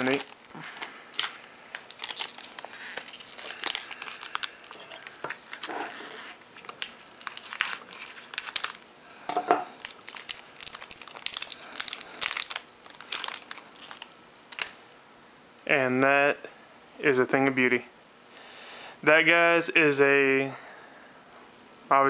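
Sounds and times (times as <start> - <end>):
metallic foil crackling: 0.0 - 8.8, 9.8 - 14.8.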